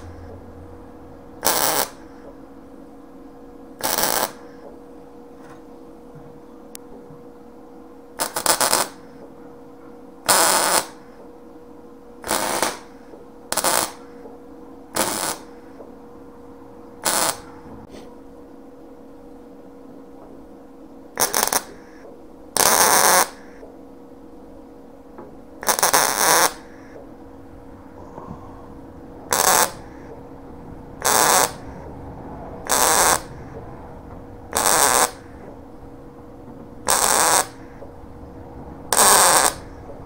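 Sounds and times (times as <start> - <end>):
welder arc bursts: 0.0 - 2.3, 3.8 - 4.6, 8.2 - 9.2, 10.2 - 11.2, 12.2 - 14.2, 14.9 - 15.7, 17.0 - 17.7, 21.2 - 22.0, 22.6 - 23.6, 25.6 - 27.0, 28.6 - 31.9, 32.6 - 33.6, 34.5 - 35.6, 36.8 - 37.9, 38.9 - 39.8.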